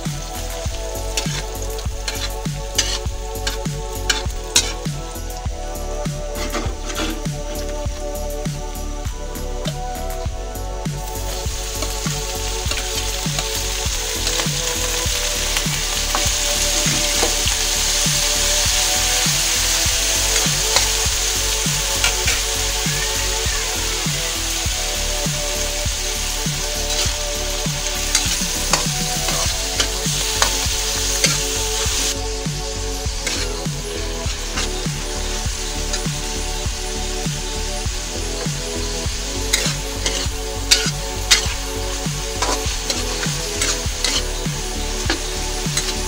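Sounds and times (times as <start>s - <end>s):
metal spatula scraping wok: 0.0s - 8.4s, 11.1s - 46.0s
meat sizzling in hot oil: 0.0s - 46.0s.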